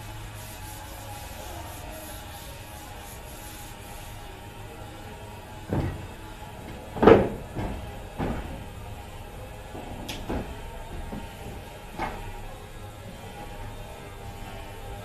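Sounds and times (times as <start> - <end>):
steady background noise: 0.0 - 15.0
dull knocks: 5.6 - 12.4.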